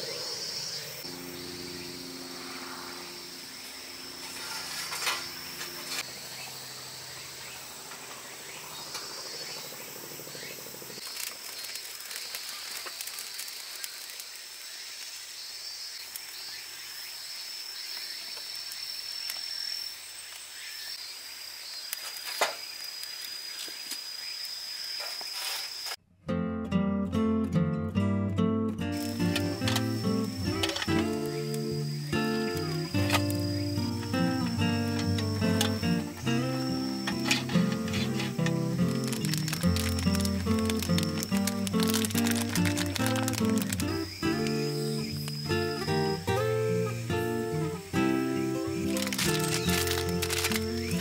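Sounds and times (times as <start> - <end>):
insects trilling: 0.0 - 26.0, 28.8 - 51.0
faint low drone: 1.0 - 4.8
campfire crackling: 9.5 - 16.9, 28.8 - 51.0
fire popping: 10.9 - 15.1, 28.8 - 46.4, 47.5 - 51.0.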